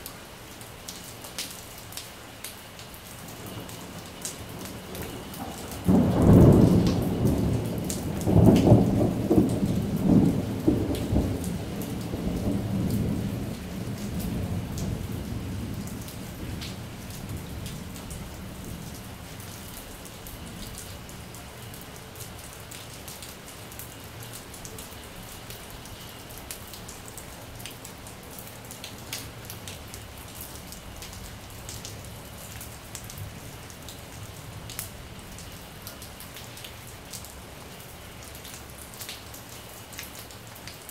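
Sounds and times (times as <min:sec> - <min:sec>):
heavy rain on tiles: 0:00.0 - 0:40.9
thunder rumbling: 0:03.6 - 0:21.4.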